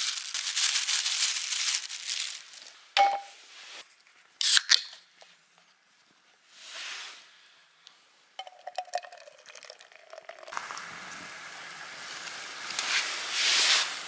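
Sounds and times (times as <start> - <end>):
beer pouring into metal mug: 8.4 - 10.6.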